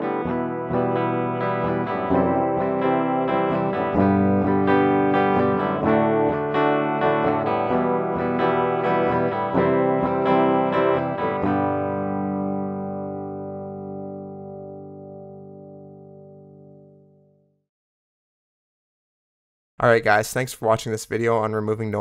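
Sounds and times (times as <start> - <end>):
guitar picked notes and chords: 0.0 - 17.6.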